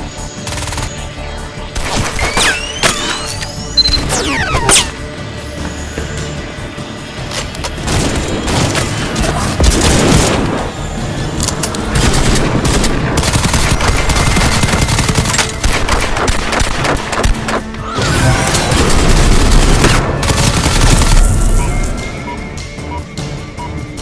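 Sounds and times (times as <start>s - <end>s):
dramatic film music: 0.0s - 24.0s
rapid gunfire: 0.4s - 1.0s, 9.6s - 10.6s, 11.9s - 17.7s, 18.7s - 21.6s.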